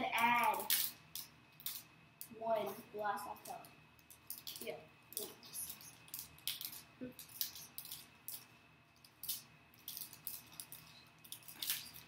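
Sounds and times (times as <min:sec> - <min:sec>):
wrapper crinkling: 0:09.2 - 0:12.0.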